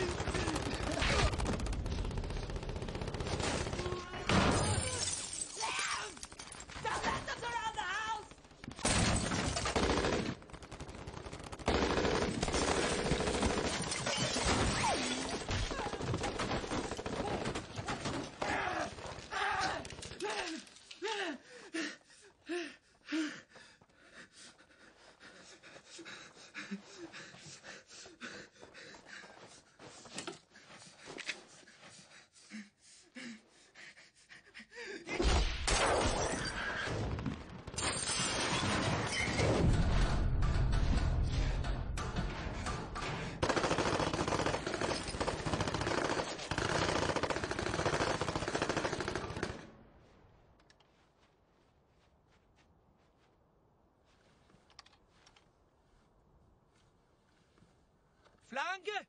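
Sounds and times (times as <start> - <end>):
glass and debris shattering: 4.3 - 6.8, 37.8 - 39.8
man's voice: 58.5 - 59.0.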